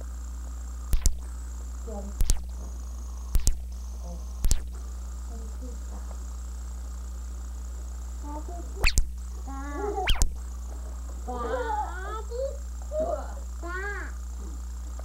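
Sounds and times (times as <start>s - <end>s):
electrical mains hum: 0.0s - 15.0s
sharp double clicks: 0.9s - 1.3s, 2.2s - 2.6s, 3.3s - 3.8s, 4.4s - 4.8s, 8.8s - 9.2s, 10.1s - 10.4s.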